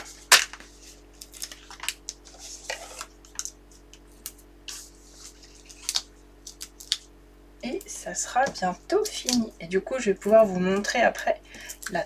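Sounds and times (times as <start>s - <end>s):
paper and plastic rustling: 0.0s - 3.6s.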